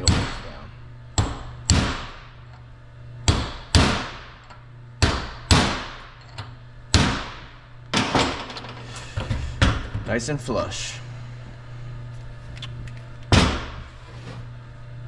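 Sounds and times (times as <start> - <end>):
hammer striking metal punch: 3.3 - 4.3, 5.0 - 6.0.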